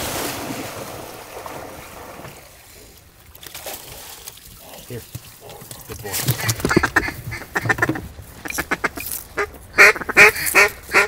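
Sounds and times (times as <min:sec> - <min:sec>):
duck quacking: 0:06.3 - 0:11.0.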